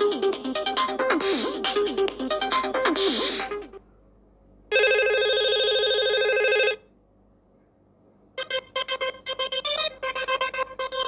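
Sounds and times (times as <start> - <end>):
ringtone with synth notes: 0.0 - 3.8, 8.4 - 11.0
electronic ring tone: 4.7 - 6.8.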